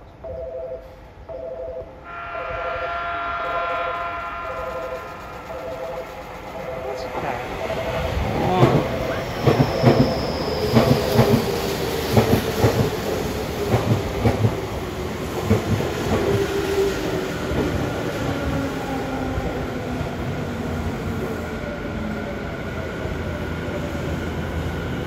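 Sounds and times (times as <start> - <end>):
train whine falling in pitch: 2.0 - 11.5
faint high brake squeal: 9.1 - 11.2.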